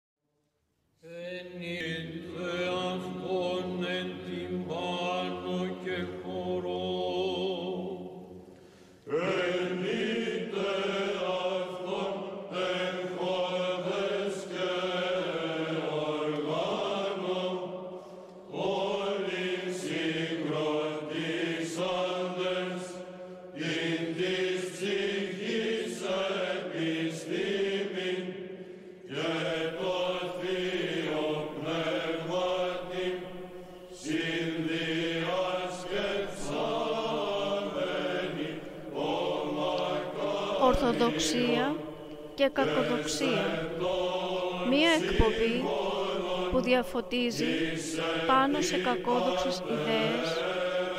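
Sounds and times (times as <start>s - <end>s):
chant melody: 1.1s - 50.9s
held vocal drone: 18.4s - 50.9s.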